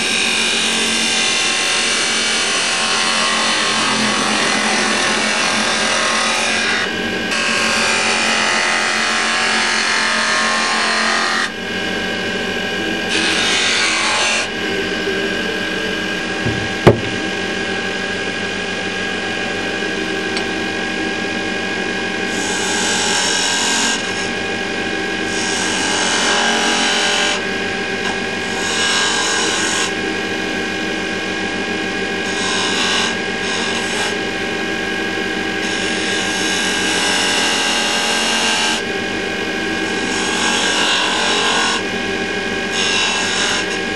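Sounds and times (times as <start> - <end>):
wood lathe humming: 0.2 - 11.5.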